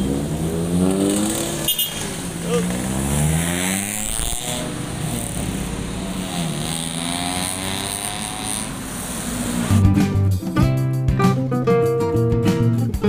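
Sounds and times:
cars passing: 0.0 - 9.9
motorcycles passing: 0.0 - 9.9.

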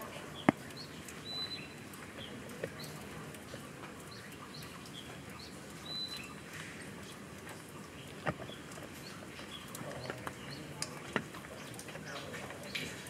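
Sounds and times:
outdoor hiss: 0.0 - 8.6
small bird chirping: 0.3 - 3.0, 4.1 - 13.0.

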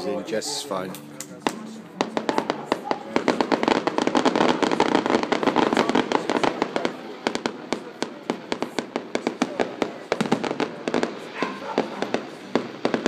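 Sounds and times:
fireworks bangs and crackles: 1.4 - 13.0.

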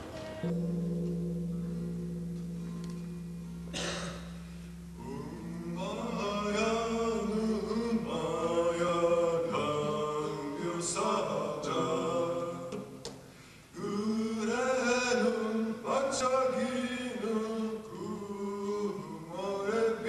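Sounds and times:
slow chanting: 0.0 - 20.0.

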